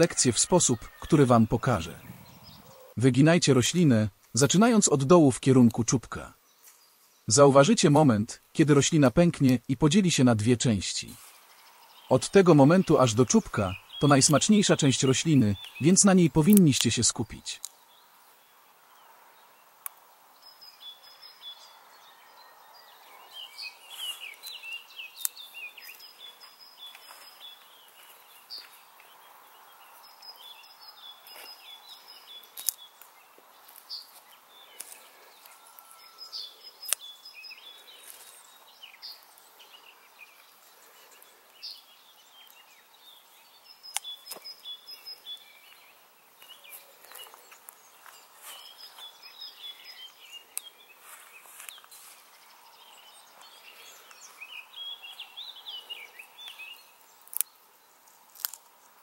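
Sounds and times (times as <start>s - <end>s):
birds chirping and singing: 0.0s - 59.0s
plant shoot snapping: 32.5s - 33.1s, 57.2s - 57.5s, 58.3s - 58.7s.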